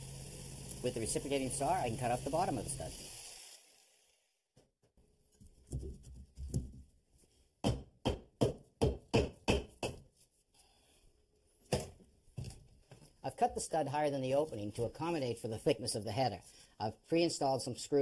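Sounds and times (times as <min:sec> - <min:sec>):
sharp knocks on wood framing: 0:07.6 - 0:10.0.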